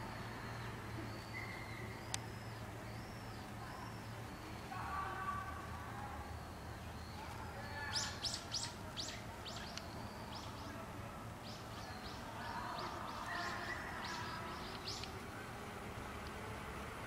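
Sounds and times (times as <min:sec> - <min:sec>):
small songbirds chirping: 0:00.0 - 0:17.0.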